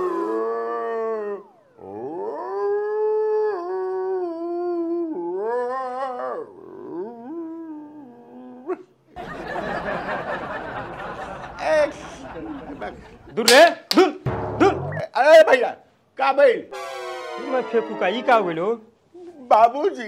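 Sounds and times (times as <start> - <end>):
dog-like howling: 0.0 - 8.7.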